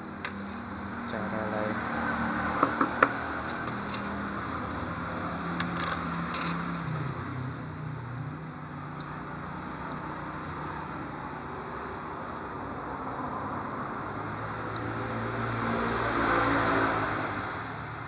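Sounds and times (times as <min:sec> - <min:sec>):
small metal parts clicking: 0:03.4 - 0:04.2, 0:05.6 - 0:07.1.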